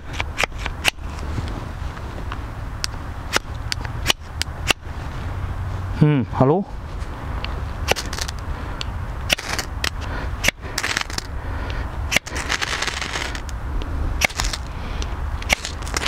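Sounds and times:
fire steel rasping strikes: 0:07.9 - 0:08.4, 0:09.3 - 0:11.3, 0:12.1 - 0:13.5, 0:14.2 - 0:14.7, 0:15.4 - 0:16.0.

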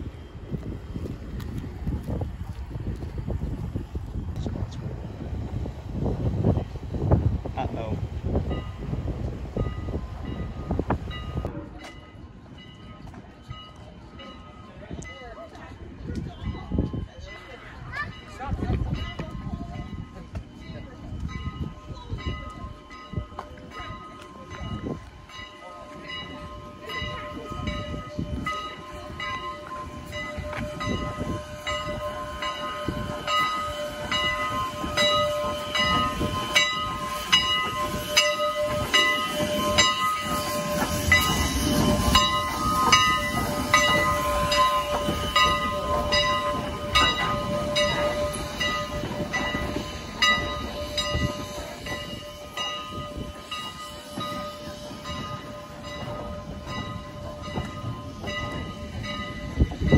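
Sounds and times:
locomotive bell clanging: 0:06.5 - 0:59.9
steam locomotive chuffing: 0:17.3 - 0:59.9.

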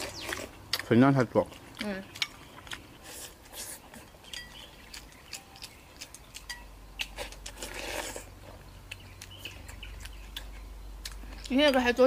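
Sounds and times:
utensils clinking against bowls: 0:04.0 - 0:04.7.

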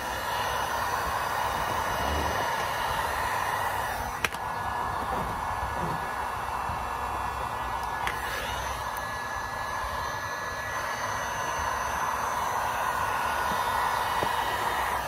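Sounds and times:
heat gun blowing: 0:00.0 - 0:15.0.

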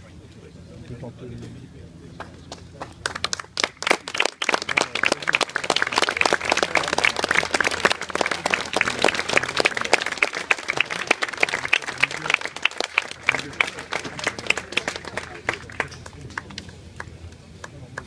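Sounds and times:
crowd applauding: 0:02.8 - 0:18.0.

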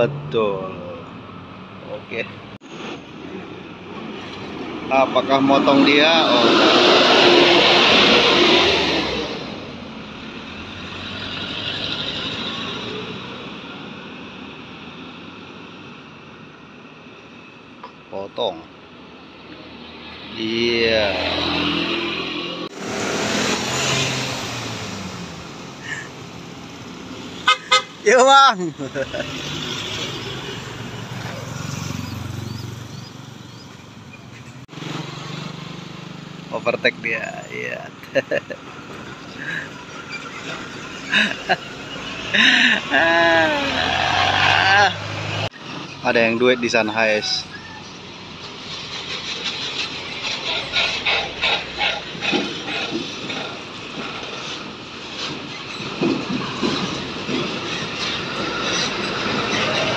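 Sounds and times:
minibus passing by: 0:02.6 - 0:17.8, 0:18.7 - 0:59.9
tyres rumbling: 0:36.5 - 0:47.5
wheels clunking over rails: 0:48.7 - 0:59.9.

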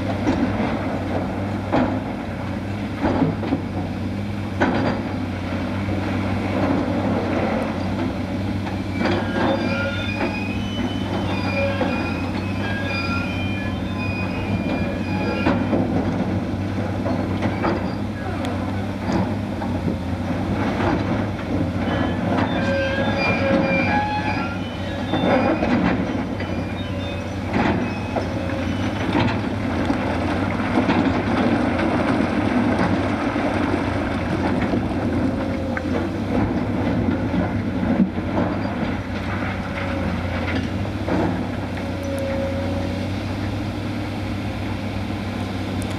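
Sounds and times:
heavy machinery engine hum: 0:00.0 - 0:45.9
brief squeaks: 0:09.0 - 0:15.7, 0:21.9 - 0:29.1.

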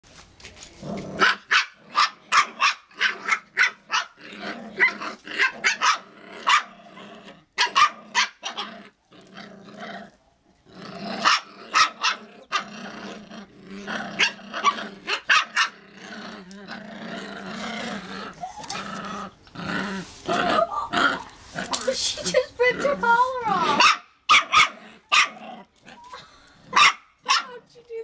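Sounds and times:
puppies growling: 0:00.8 - 0:21.9, 0:24.5 - 0:26.8.

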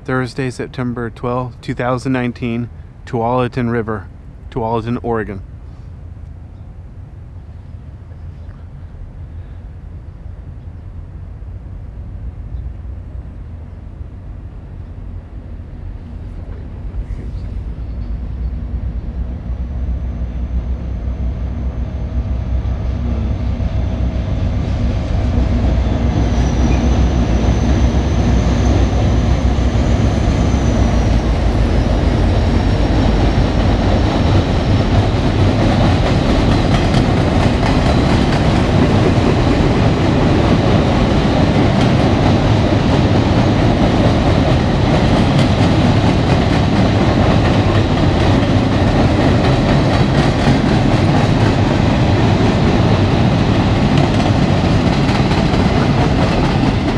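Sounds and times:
freight train rumbling and clattering: 0:11.0 - 0:56.9
high-pitched wheel squeal: 0:25.8 - 0:32.7.

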